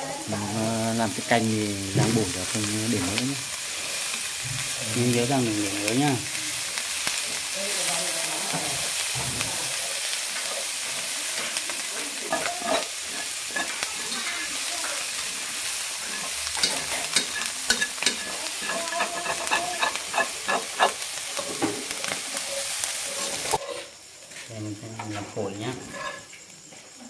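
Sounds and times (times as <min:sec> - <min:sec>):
food sizzling in a pan: 0:00.0 - 0:27.0
utensil tapping and scraping pan: 0:12.2 - 0:14.2, 0:16.0 - 0:22.2.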